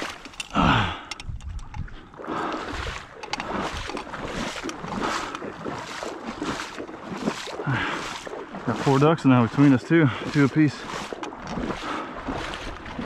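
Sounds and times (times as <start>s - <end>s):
footsteps wading through water: 0.0s - 13.0s.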